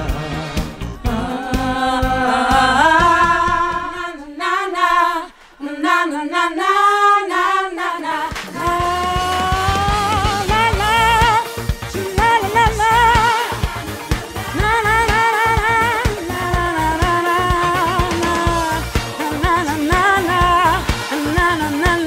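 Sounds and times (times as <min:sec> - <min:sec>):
band backing music: 0:00.0 - 0:03.9, 0:08.4 - 0:22.0
woman singing with vibrato: 0:01.0 - 0:13.8, 0:14.4 - 0:22.0.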